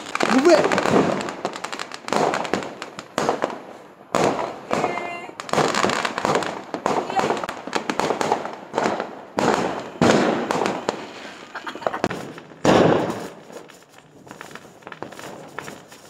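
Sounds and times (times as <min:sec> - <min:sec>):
firecracker bangs: 0:00.0 - 0:16.0
fireworks crackling: 0:00.0 - 0:16.0.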